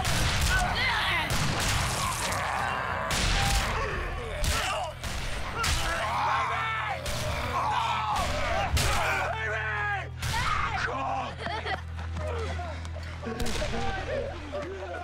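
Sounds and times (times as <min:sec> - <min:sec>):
gunshots: 0:00.0 - 0:06.1
people screaming and shouting: 0:00.0 - 0:15.0.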